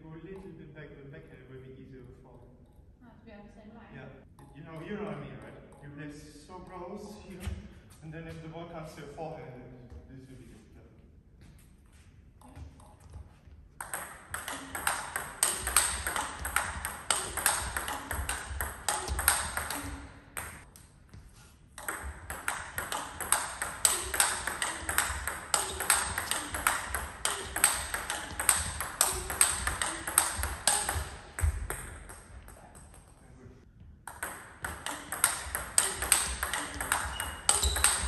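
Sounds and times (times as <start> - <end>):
table tennis ball clicks: 13.8 - 20.6, 21.8 - 32.2, 34.1 - 38.0.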